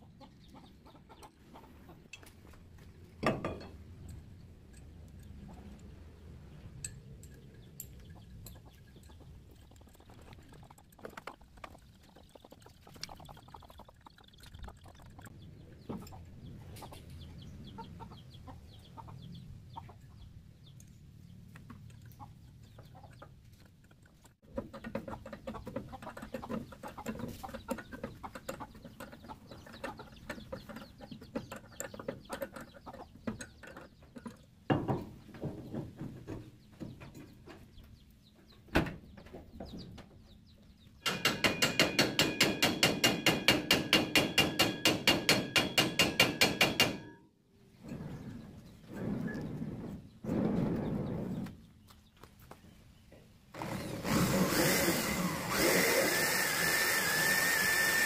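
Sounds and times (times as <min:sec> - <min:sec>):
chickens clucking: 0:00.0 - 0:04.4, 0:05.2 - 0:06.6, 0:07.3 - 0:20.8, 0:21.5 - 0:41.0
hand tools tapping on machine: 0:41.0 - 0:47.1.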